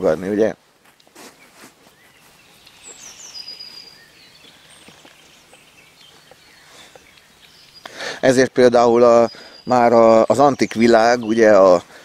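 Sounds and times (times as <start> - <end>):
high bird call: 1.4 - 11.8
faint ticks: 4.8 - 8.0.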